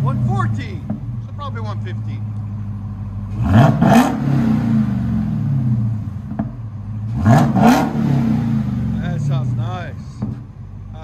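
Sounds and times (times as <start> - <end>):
car engine revving from idle: 3.3 - 9.6.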